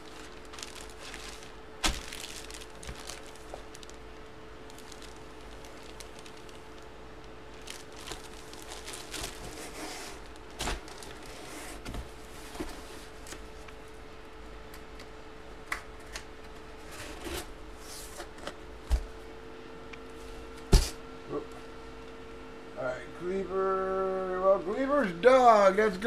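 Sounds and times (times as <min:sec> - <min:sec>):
plastic bag crinkling: 0:00.0 - 0:11.4
faint steady hum: 0:00.0 - 0:26.0.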